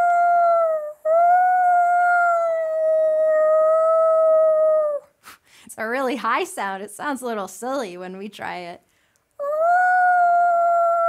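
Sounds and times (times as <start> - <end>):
woman imitating whale call: 0.0 - 5.1, 9.4 - 11.0.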